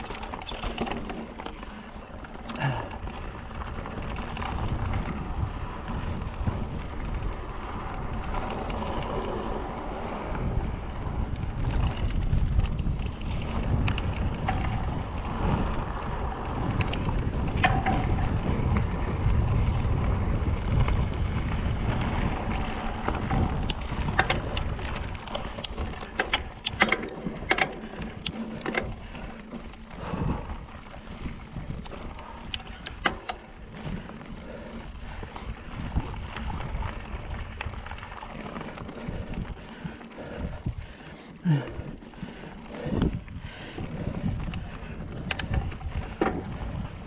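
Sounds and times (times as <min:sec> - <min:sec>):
sharp clicks and rattles: 0:00.0 - 0:05.2, 0:11.6 - 0:19.4, 0:20.7 - 0:47.0
wind buffeting microphone: 0:00.0 - 0:47.0.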